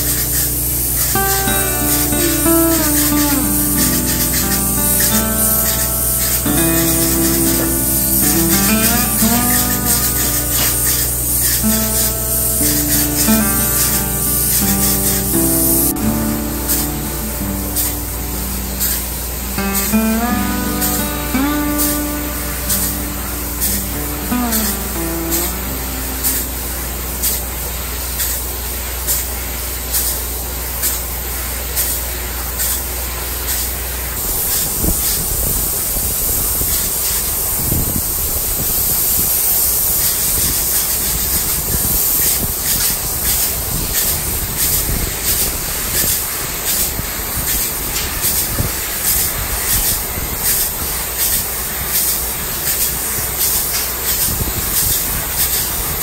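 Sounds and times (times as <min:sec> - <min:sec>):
spray foam gun hissing: 0:00.1 - 0:01.5, 0:02.9 - 0:15.8.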